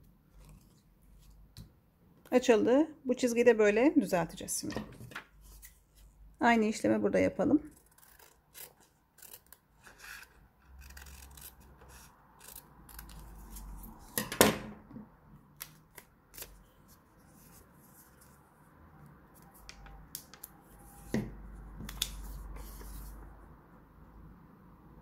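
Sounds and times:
scissors cutting paper: 0:07.6 - 0:14.2.

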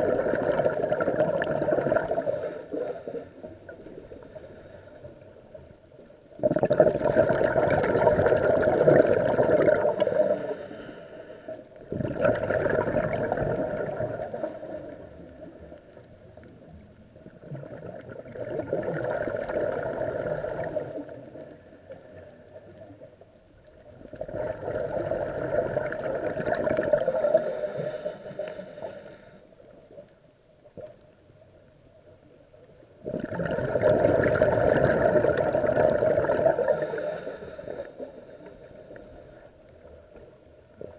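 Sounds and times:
diver exhaling bubbles underwater: 0:00.0 - 0:02.9, 0:06.4 - 0:10.5, 0:11.8 - 0:15.0, 0:17.3 - 0:21.2, 0:24.0 - 0:27.5, 0:33.0 - 0:37.2
breathing through a regulator: 0:01.5 - 0:05.4, 0:09.4 - 0:11.8, 0:13.8 - 0:16.0, 0:26.9 - 0:29.7, 0:36.3 - 0:39.7.

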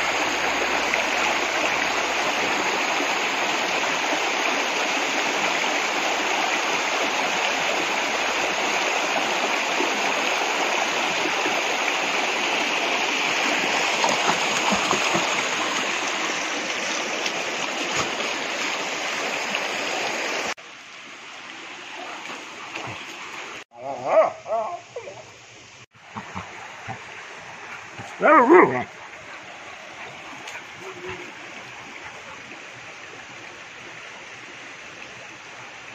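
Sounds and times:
river flowing over rocks: 0:00.0 - 0:23.6
brief voice-like sounds: 0:30.8 - 0:31.4.

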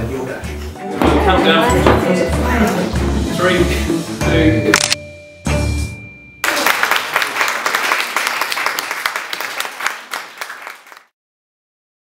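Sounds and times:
people applauding: 0:06.4 - 0:11.2.

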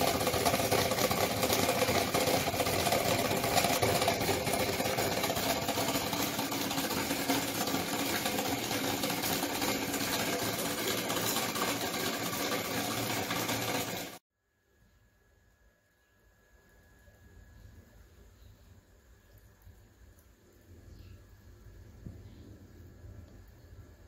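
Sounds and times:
motor fast mechanical clatter: 0:00.0 - 0:14.2.

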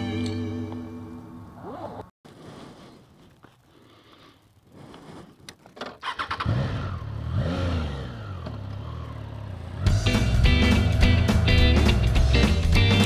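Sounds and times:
motorcycle engine starting and idling: 0:05.4 - 0:13.0
motorcycle engine revving: 0:06.0 - 0:13.0.

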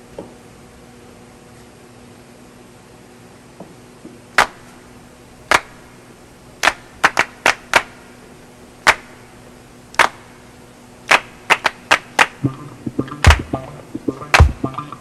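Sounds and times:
sharp short snaps: 0:04.4 - 0:04.8, 0:05.5 - 0:05.9, 0:06.6 - 0:08.1, 0:08.8 - 0:09.3, 0:09.9 - 0:10.4, 0:11.1 - 0:15.0.

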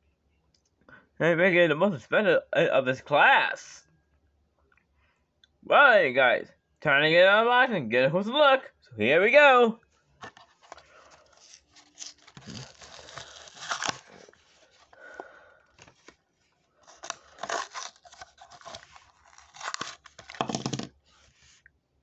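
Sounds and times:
cardboard tearing: 0:10.2 - 0:15.0, 0:16.8 - 0:20.9
plastic crinkling: 0:10.2 - 0:16.2, 0:16.8 - 0:20.9.

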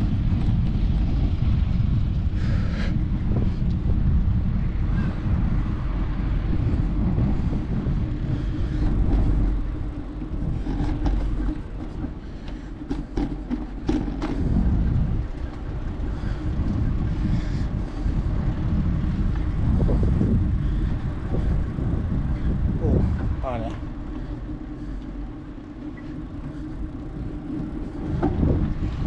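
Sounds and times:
passing traffic: 0:00.0 - 0:29.0
road noise: 0:00.0 - 0:29.0
wind buffeting microphone: 0:00.0 - 0:29.0.

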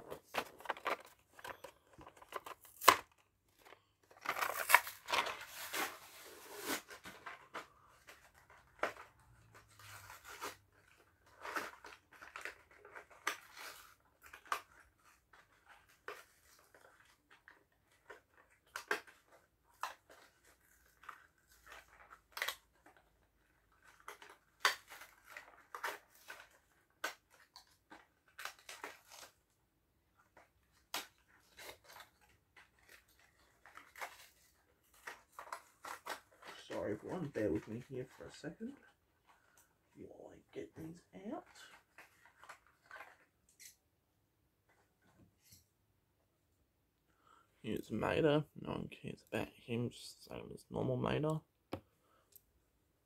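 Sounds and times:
plastic packaging being torn open: 0:00.2 - 0:07.0.

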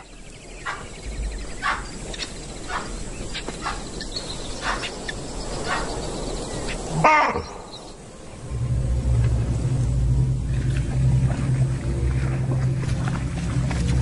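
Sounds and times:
faint insect drone: 0:00.0 - 0:14.0
animal alarm calls: 0:01.6 - 0:04.9.

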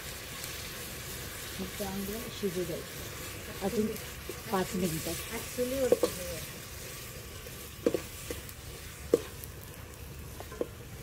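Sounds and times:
meat sizzling in a pot: 0:00.0 - 0:11.0.

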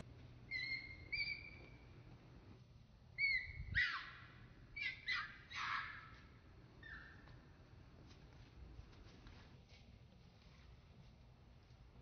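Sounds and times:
baby monkey crying: 0:00.5 - 0:01.8, 0:03.2 - 0:06.2.

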